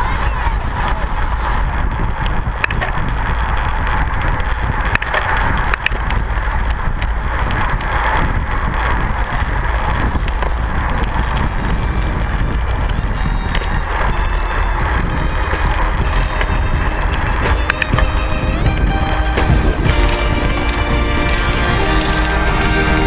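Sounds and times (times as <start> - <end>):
tyre and road noise: 0.0 - 23.0
wind buffeting microphone: 0.0 - 23.0
sharp clicks: 15.0 - 20.8.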